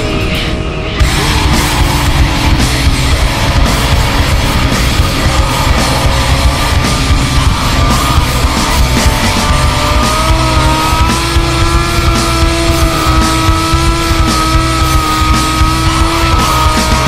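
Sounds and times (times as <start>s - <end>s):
loud rock music: 0.0s - 17.0s.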